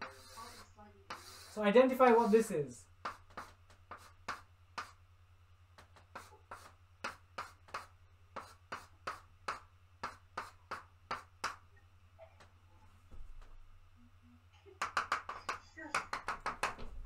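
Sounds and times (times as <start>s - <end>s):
chalk on blackboard: 0.0s - 5.0s, 5.8s - 11.7s, 14.8s - 16.8s.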